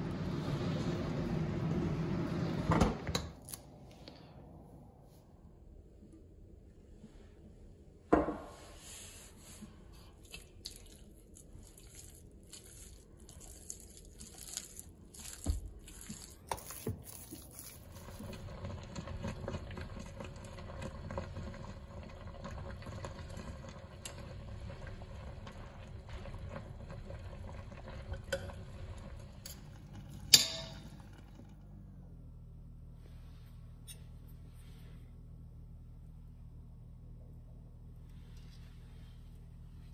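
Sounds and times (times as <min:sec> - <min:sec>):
broth simmering in pot: 0:09.0 - 0:32.0.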